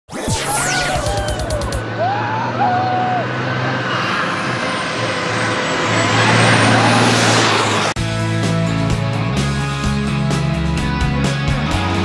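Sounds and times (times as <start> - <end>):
race car accelerating and shifting gears: 1.6 - 8.2.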